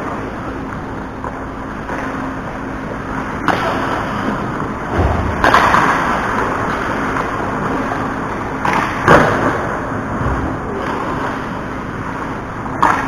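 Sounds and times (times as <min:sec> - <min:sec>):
low thump: 0:04.9 - 0:05.7
skates scraping on ice: 0:05.4 - 0:09.7.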